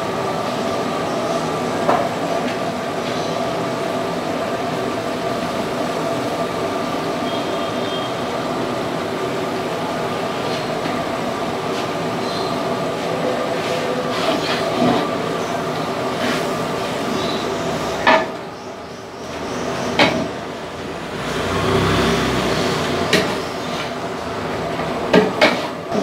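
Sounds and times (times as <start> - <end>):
steady roar: 20.8 - 23.5.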